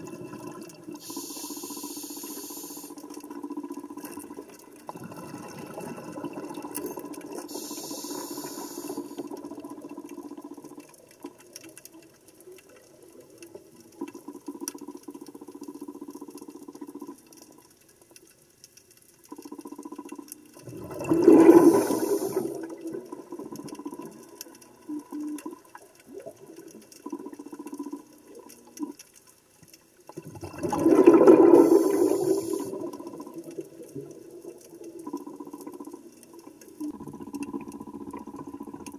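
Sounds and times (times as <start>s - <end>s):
rushes of bubbling water: 0.0s - 1.2s, 2.9s - 17.7s, 19.4s - 29.0s, 30.1s - 38.9s
underwater low hum: 0.0s - 38.9s.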